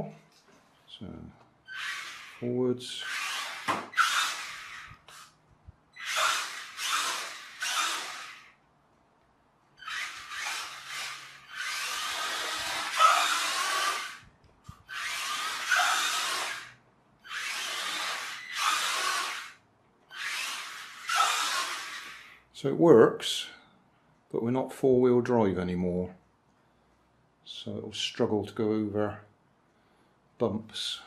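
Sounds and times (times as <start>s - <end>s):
electric motor and gears whirring: 1.7s - 5.4s, 6.0s - 8.6s, 9.8s - 22.5s.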